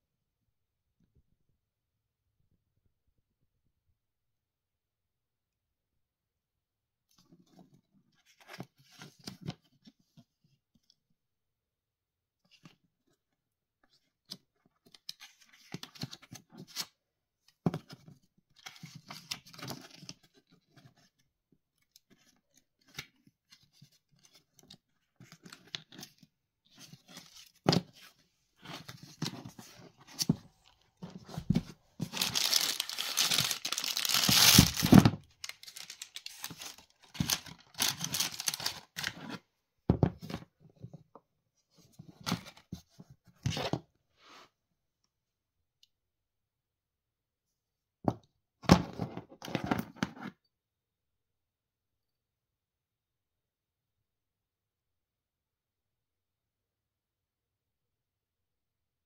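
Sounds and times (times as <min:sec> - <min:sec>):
paper booklet pages rustling: 0:22.1 - 0:39.4
paper crinkling: 0:28.7 - 0:39.2.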